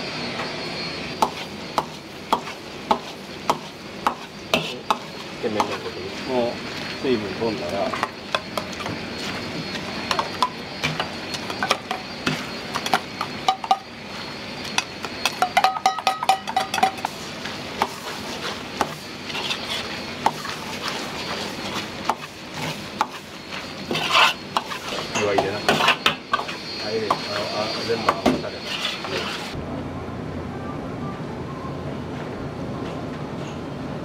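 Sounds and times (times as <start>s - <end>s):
metal utensils clanking on pans: 10.1s - 13.8s, 15.2s - 17.2s.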